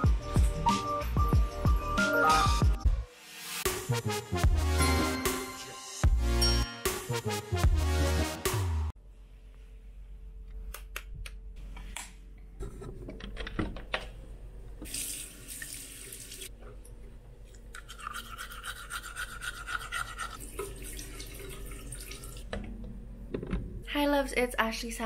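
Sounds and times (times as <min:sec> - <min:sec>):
teeth being brushed: 0:17.7 - 0:20.4.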